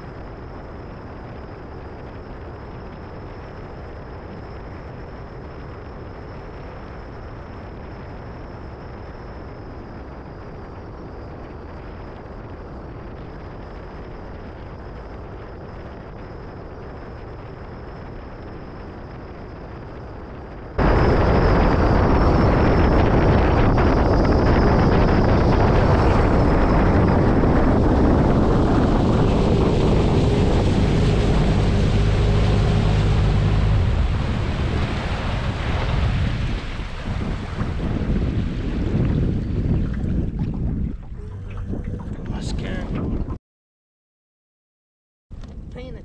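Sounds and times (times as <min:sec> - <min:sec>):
wind buffeting microphone: 0:16.6 - 0:43.4
outboard motor rumble: 0:20.8 - 0:43.4.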